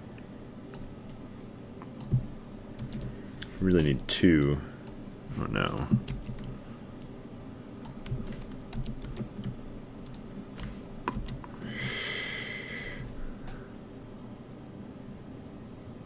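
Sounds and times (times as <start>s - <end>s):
computer mouse clicks: 1.8s - 3.2s, 7.8s - 11.6s
soft breathy noise: 11.6s - 13.8s.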